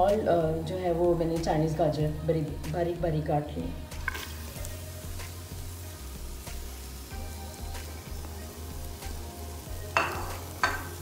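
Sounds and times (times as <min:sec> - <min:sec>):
background music with bass: 0:00.0 - 0:11.0
food sizzling in a pot: 0:03.7 - 0:11.0.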